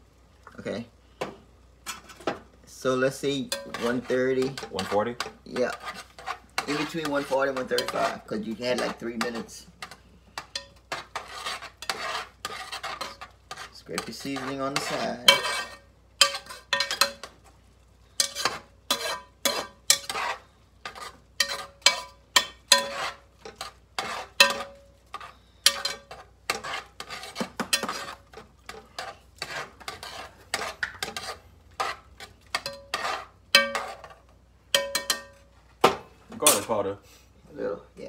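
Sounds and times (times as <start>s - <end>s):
spoon clinking in metal pot: 6.6s - 11.0s, 14.0s - 17.3s, 21.4s - 23.6s, 24.4s - 24.9s, 25.6s - 26.7s, 32.5s - 34.1s, 34.7s - 35.4s.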